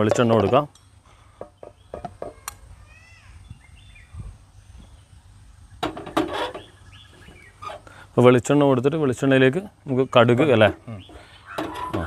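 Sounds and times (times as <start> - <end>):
person speaking: 0.0 - 0.7
bird chirping: 0.0 - 8.0, 9.8 - 12.0.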